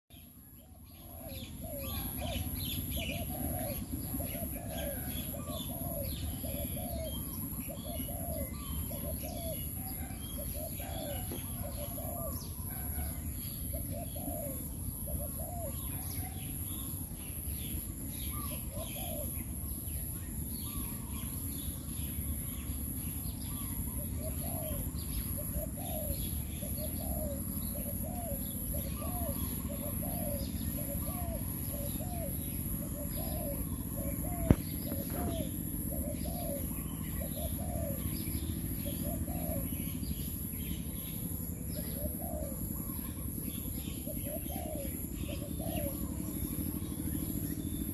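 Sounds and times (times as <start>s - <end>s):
small birds chirping: 0.1s - 47.9s
doves cooing: 0.6s - 21.4s, 22.8s - 47.9s
steady low rumble: 29.4s - 47.9s.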